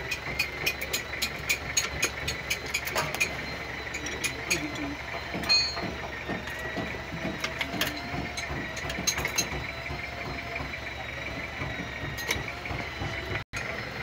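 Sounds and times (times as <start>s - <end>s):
spanner clinking on metal fittings: 0.0s - 5.9s, 6.5s - 9.6s.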